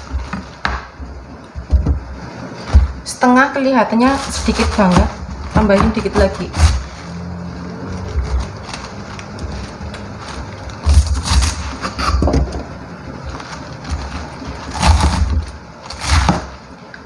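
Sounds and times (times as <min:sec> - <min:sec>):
knife cutting cabbage: 0:03.9 - 0:12.3, 0:13.2 - 0:16.6.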